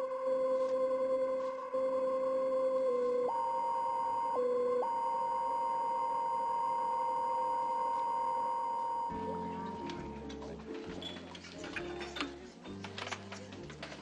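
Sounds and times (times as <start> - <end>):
eerie electronic music: 0.0 - 10.6.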